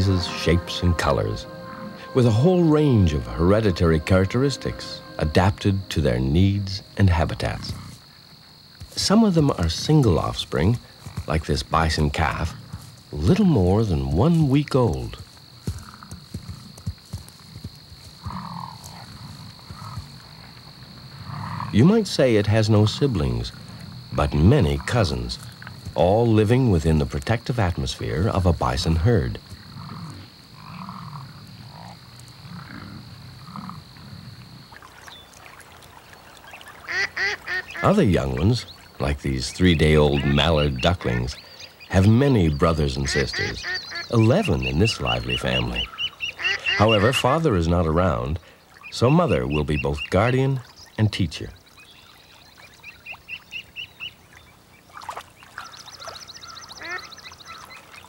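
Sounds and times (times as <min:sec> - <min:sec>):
ducklings peeping: 0:36.1 - 0:58.0.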